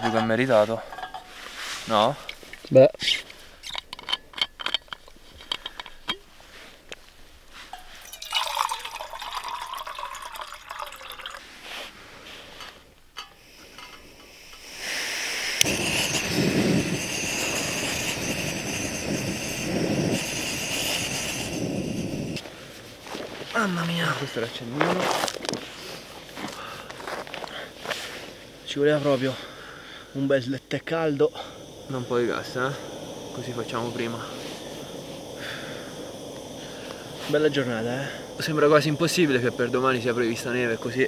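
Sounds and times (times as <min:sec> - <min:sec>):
metal mug clinking: 0:00.0 - 0:01.4, 0:03.7 - 0:06.3, 0:07.7 - 0:11.4, 0:12.6 - 0:14.6
burner rushing hiss: 0:00.0 - 0:03.7, 0:05.0 - 0:41.0
gas hissing from canister: 0:07.7 - 0:41.0
water poured into mug: 0:08.0 - 0:11.5.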